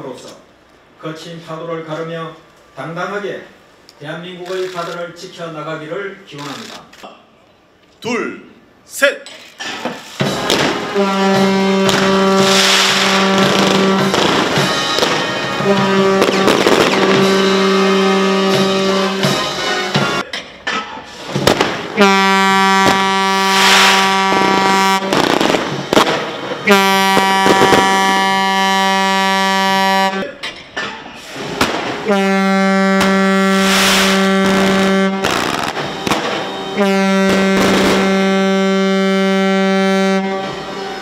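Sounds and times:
confetti cannons banging: 10.0s - 20.2s, 21.2s - 28.5s, 31.4s - 32.3s, 32.9s - 38.3s
ship's horn blasts: 10.7s - 20.2s, 21.9s - 25.4s, 26.6s - 30.4s, 32.0s - 41.0s.

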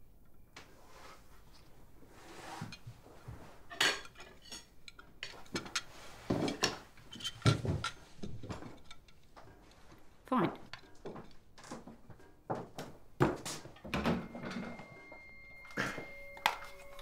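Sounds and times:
plates and cutlery clinking: 2.6s - 9.8s.

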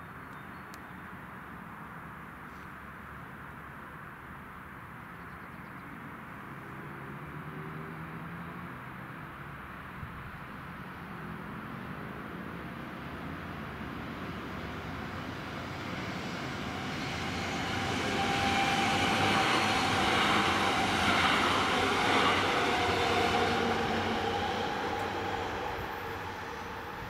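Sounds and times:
electric train passing: 13.0s - 27.0s.

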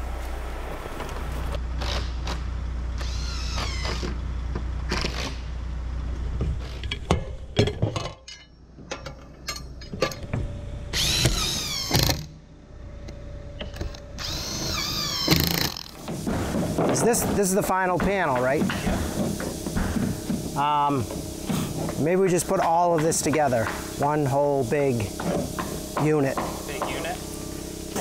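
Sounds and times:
steady low hum: 0.0s - 28.0s
power tool running in spurts: 10.5s - 12.3s, 13.0s - 28.0s
knocks: 16.0s - 23.9s, 25.2s - 27.2s.

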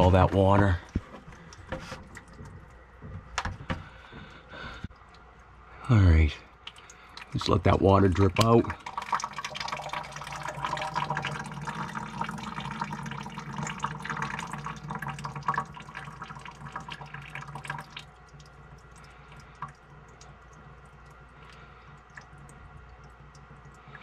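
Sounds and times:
water dripping into a container: 0.0s - 2.9s, 4.9s - 5.6s, 6.4s - 24.0s
water trickling from a pipe: 0.0s - 2.9s, 5.0s - 24.0s.

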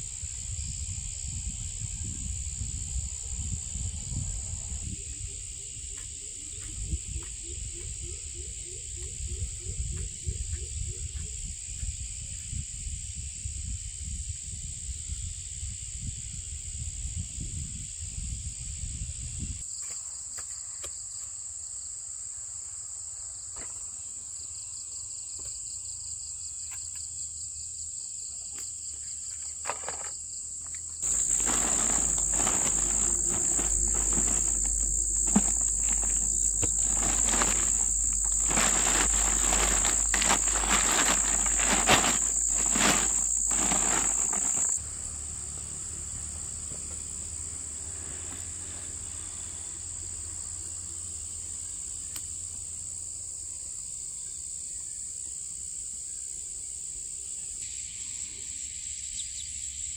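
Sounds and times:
insects chirring: 0.0s - 56.2s
rustling and knocks: 31.0s - 44.8s.

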